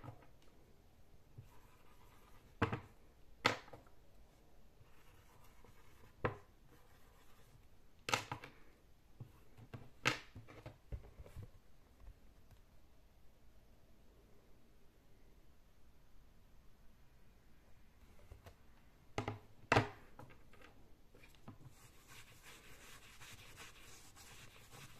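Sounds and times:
marker writing on whiteboard: 0:04.8 - 0:07.6, 0:21.5 - 0:24.9.

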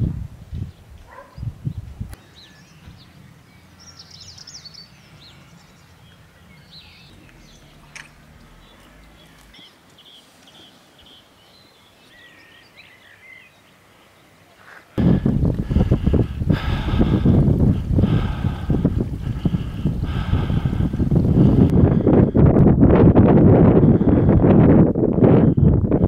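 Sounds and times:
wind rumble on microphone: 0:00.0 - 0:10.1, 0:15.0 - 0:26.0
small birds chirping: 0:00.6 - 0:15.0.

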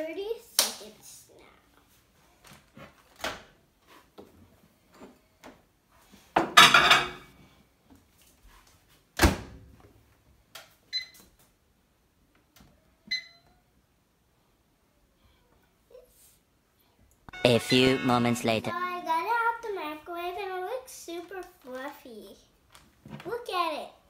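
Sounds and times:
short keypad beeps: 0:17.3 - 0:18.7.

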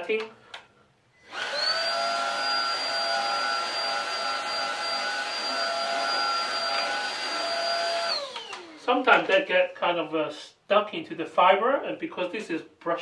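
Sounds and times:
vacuum cleaner motor whining: 0:01.2 - 0:08.9
vacuum brush on carpet: 0:01.3 - 0:08.6.

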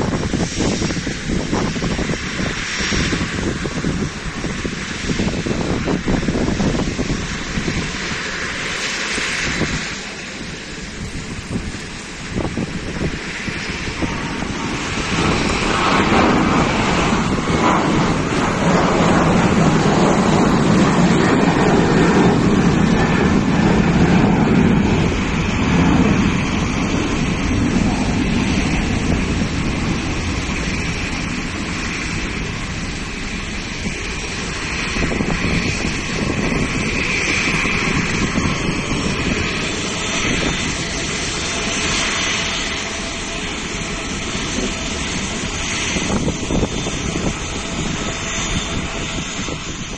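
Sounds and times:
jet engines at takeoff thrust: 0:00.0 - 0:49.9.

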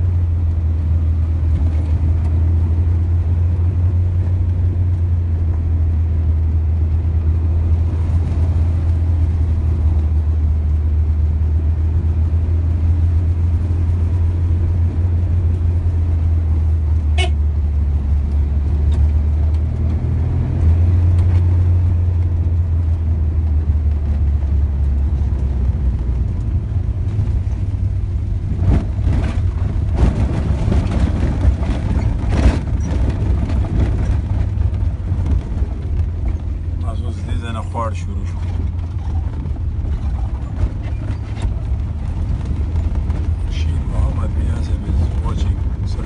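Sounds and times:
knocks and rattles on dirt track: 0:00.0 - 0:46.0
vehicle engine and road noise: 0:00.0 - 0:46.0.

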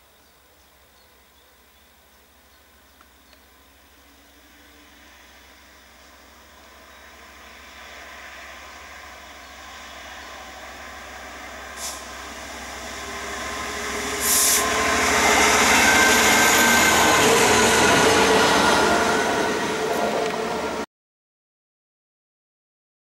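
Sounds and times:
locomotive diesel engine: 0:00.4 - 0:20.9
short hiss: 0:11.7 - 0:12.2, 0:14.2 - 0:14.7.

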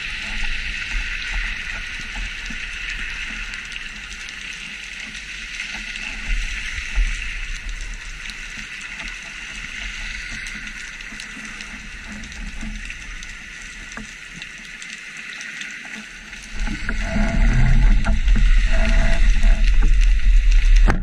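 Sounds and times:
low rumble of water: 0:00.0 - 0:21.0
faint clicks: 0:00.2 - 0:21.0
underwater hiss: 0:05.0 - 0:20.8.

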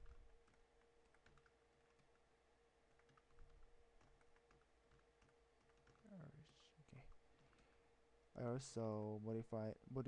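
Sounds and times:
faint keyboard typing: 0:00.0 - 0:07.8.

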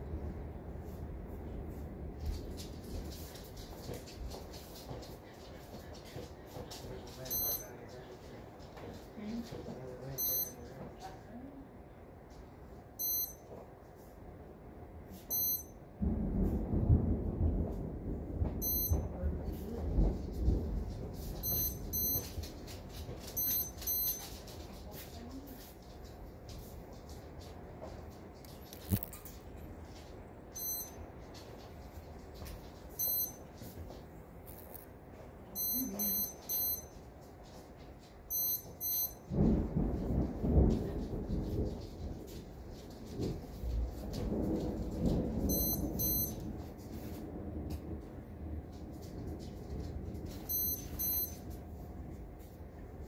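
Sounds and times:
low rumble of thunder: 0:00.0 - 0:07.7, 0:15.9 - 0:33.4, 0:38.1 - 0:53.0
steady rain: 0:00.0 - 0:10.1, 0:16.0 - 0:36.0, 0:39.2 - 0:53.0
high electronic beep: 0:07.3 - 0:07.7, 0:10.2 - 0:10.6, 0:13.0 - 0:13.4, 0:15.3 - 0:15.7, 0:18.6 - 0:19.0, 0:21.4 - 0:22.2, 0:23.4 - 0:24.2, 0:30.6 - 0:31.0, 0:33.0 - 0:33.4, 0:35.6 - 0:36.8, 0:38.3 - 0:39.2, 0:45.5 - 0:46.4, 0:50.5 - 0:51.4.

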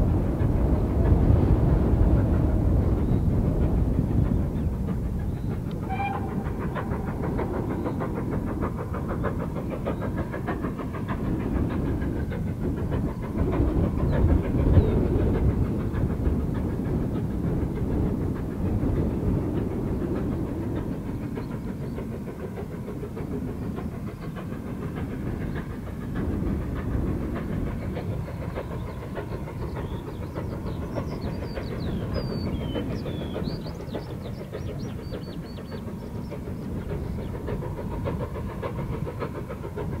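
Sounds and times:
steam locomotive exhaust chuffs: 0:00.0 - 0:40.0
birds chirping: 0:04.3 - 0:10.3, 0:27.8 - 0:38.1.

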